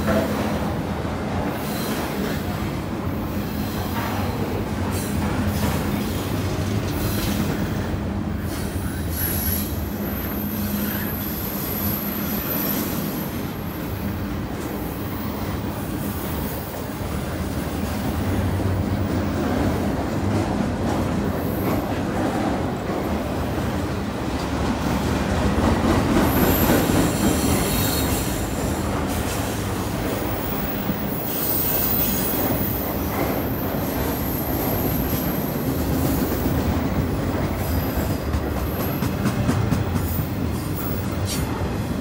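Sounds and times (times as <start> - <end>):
train wheels rumbling on rail: 0.0 - 42.0
high wheel squeal: 8.6 - 13.3, 26.3 - 28.8, 30.3 - 32.9.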